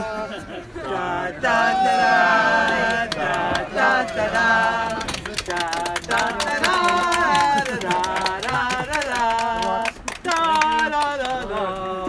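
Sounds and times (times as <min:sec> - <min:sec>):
voices singing: 0:00.0 - 0:12.0
hand claps: 0:02.8 - 0:11.9.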